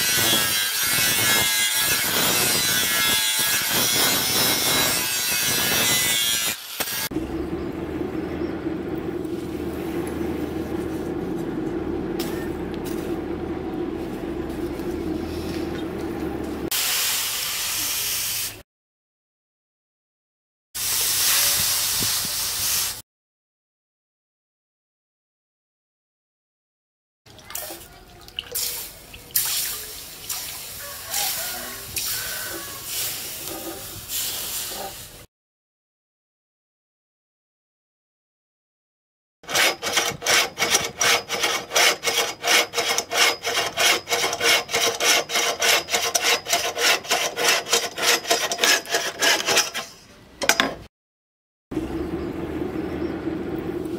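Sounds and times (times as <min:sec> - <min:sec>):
angle grinder grinding steel: 0:00.0 - 0:07.4, 0:39.5 - 0:50.0
forge air blower humming: 0:07.1 - 0:16.7, 0:51.8 - 0:53.9
water splashing in trough: 0:27.3 - 0:30.7
hand rubbing knife blade: 0:39.6 - 0:50.0.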